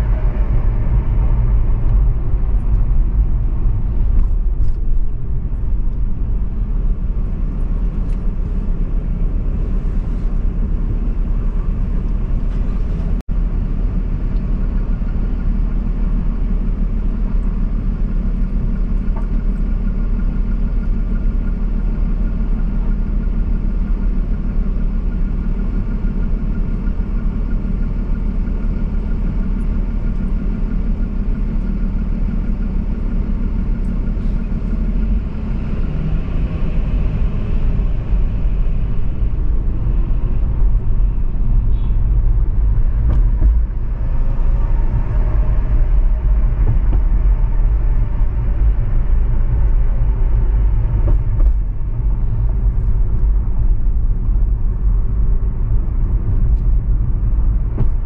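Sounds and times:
car driving rumble: 0.0 - 58.0.

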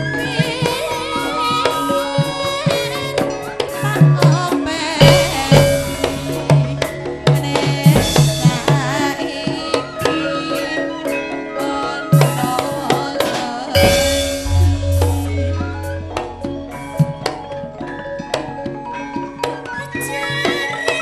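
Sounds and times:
gamelan ensemble playing: 0.0 - 20.9
drum beats: 1.8 - 10.1, 12.2 - 18.9
deep low gong note: 5.0 - 7.4, 13.8 - 17.4
kettle-gong notes: 5.0 - 9.0, 13.8 - 17.9.

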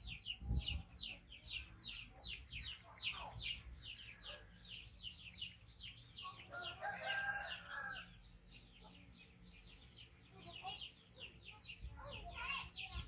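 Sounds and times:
rooster crowing: 6.5 - 8.1.

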